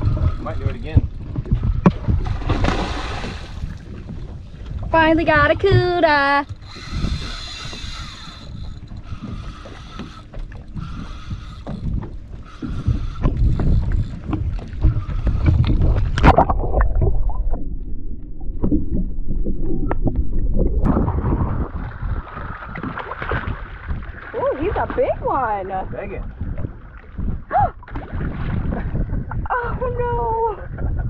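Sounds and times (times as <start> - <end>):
wind buffeting microphone: 0.0 - 17.7, 18.4 - 31.0
water slapping boat hull: 0.0 - 31.0.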